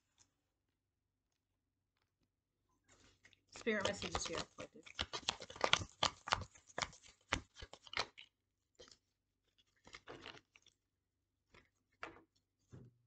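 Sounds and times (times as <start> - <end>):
cards rustling: 3.6 - 8.3
cards snapping and slapping: 3.8 - 8.2.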